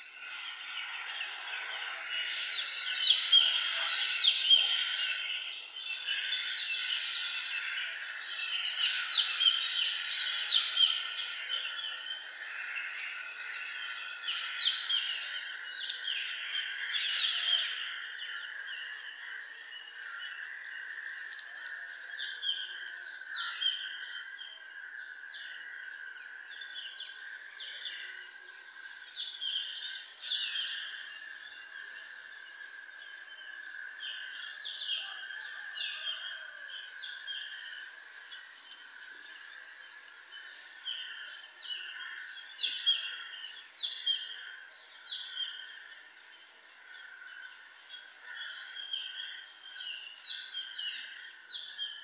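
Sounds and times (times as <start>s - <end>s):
small birds chirping: 0.0s - 46.2s
steady high-pitched hiss: 0.0s - 52.0s.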